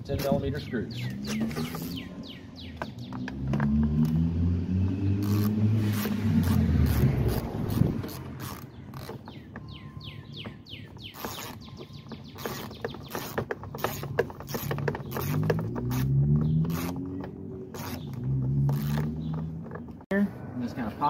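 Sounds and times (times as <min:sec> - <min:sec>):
ratchet pawl clicks: 0:05.1 - 0:09.3, 0:12.4 - 0:19.5.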